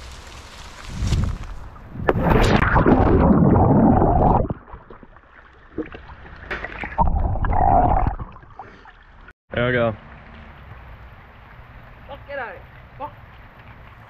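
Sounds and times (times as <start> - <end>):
muffled water churning and gurgling: 1.6 - 9.3.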